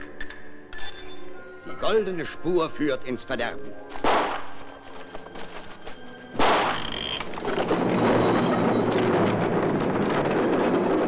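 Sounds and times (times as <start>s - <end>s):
faint music with held tones: 0.0s - 8.7s
steady rumbling noise: 6.4s - 11.0s.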